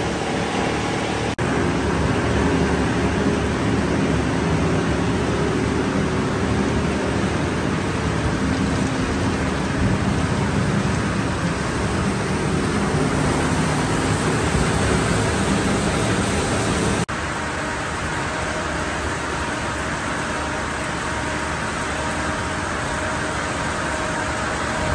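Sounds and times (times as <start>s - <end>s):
paddles churning water: 0.0s - 17.1s
low machine hum: 0.0s - 24.9s.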